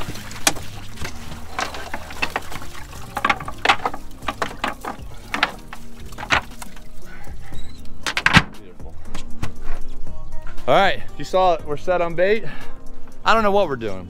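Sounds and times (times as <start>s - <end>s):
fish and net slapping: 0.0s - 7.3s
water pouring and dripping: 0.0s - 8.6s.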